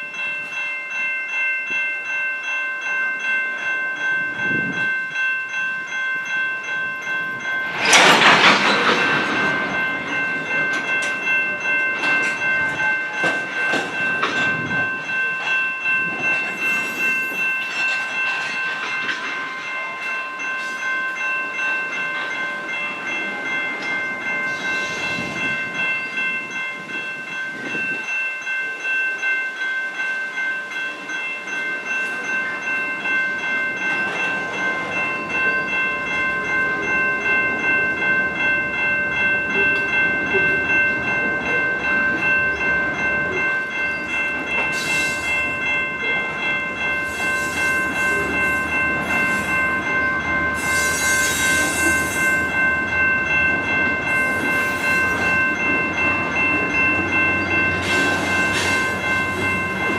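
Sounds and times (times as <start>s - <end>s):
crossing warning bell: 0.0s - 59.9s
freight train rumbling and clacking: 3.4s - 28.1s, 30.9s - 59.9s
train hissing: 44.7s - 45.5s, 50.6s - 52.5s.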